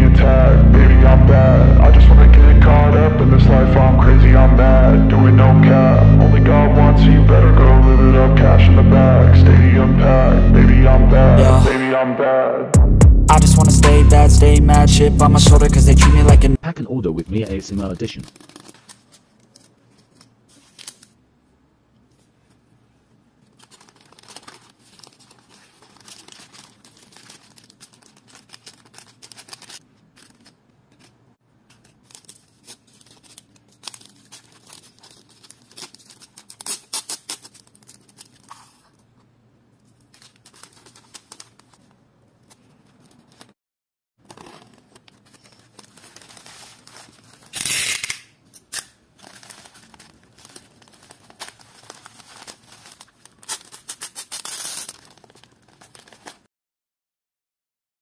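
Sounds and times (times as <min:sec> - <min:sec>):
packaging rustling and tearing: 0:17.3 - 0:21.2, 0:23.4 - 0:39.1, 0:39.8 - 0:43.6, 0:44.2 - 0:56.5
packaging clicks: 0:17.8 - 0:21.1, 0:23.6 - 0:38.8
loud rasping tear: 0:47.5 - 0:48.9.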